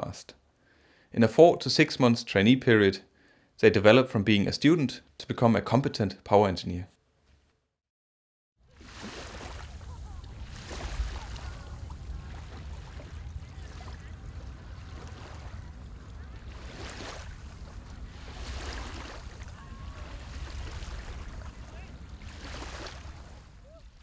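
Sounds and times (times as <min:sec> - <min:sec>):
sea rumbling around a boat: 0:08.7 - 0:24.0
wind buffeting microphone: 0:09.7 - 0:24.0.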